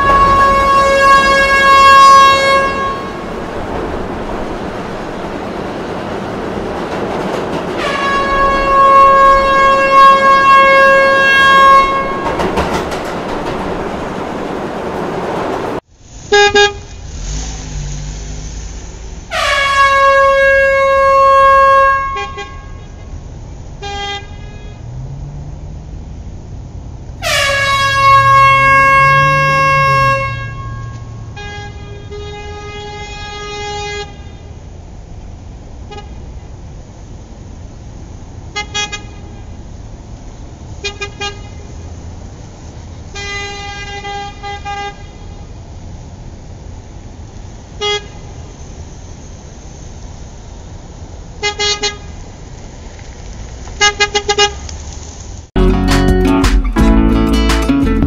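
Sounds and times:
vehicle horn blasts: 0.0 - 3.3, 7.8 - 12.4, 19.3 - 23.0, 23.8 - 24.8, 27.2 - 34.5, 43.2 - 45.4
traffic hum: 0.0 - 55.7.

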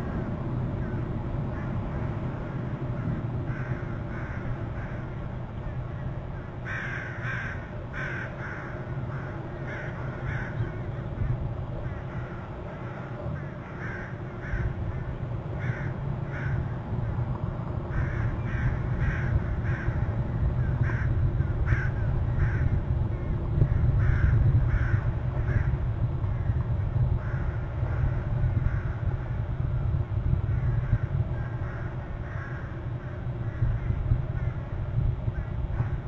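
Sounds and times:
low wind rumble: 0.0 - 36.0
crows cawing: 0.8 - 16.8, 17.9 - 22.8, 24.0 - 25.8, 27.2 - 29.2, 30.5 - 34.6.

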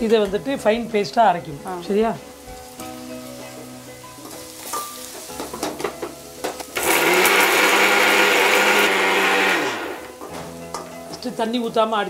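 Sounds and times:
electric mixer grinder running: 6.8 - 10.1.

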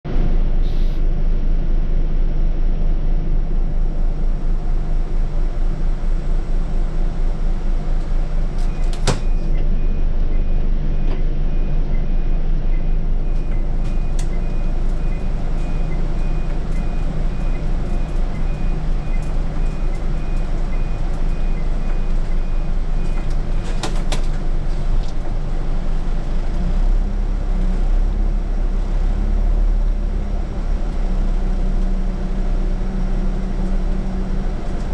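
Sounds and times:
bus engine droning: 0.0 - 34.9
faint high beeping: 11.9 - 23.7.

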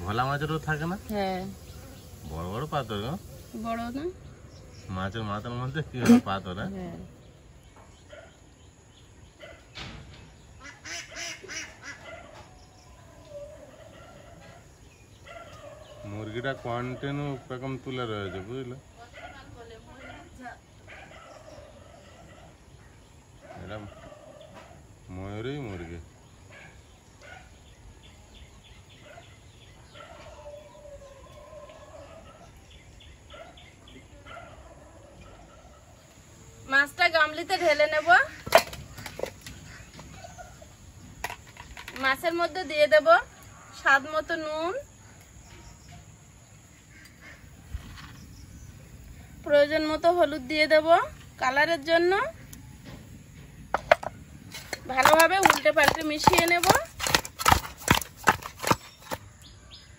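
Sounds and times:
ducks calling: 10.5 - 12.4, 38.1 - 40.7, 46.8 - 47.7.

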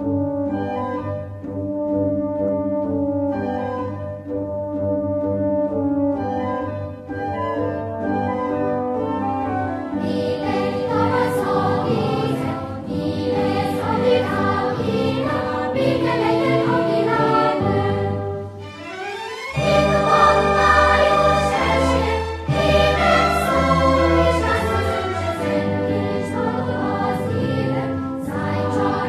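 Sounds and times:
choir singing: 9.4 - 29.0
orchestra sustained chords: 9.9 - 29.0.

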